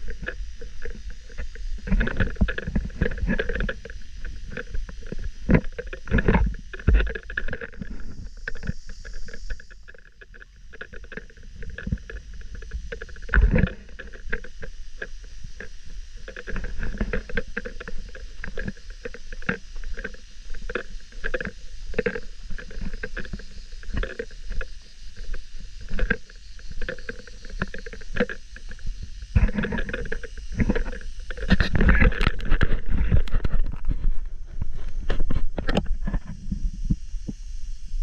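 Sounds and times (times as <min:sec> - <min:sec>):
wind rumble on microphone: 0:00.0 - 0:38.0.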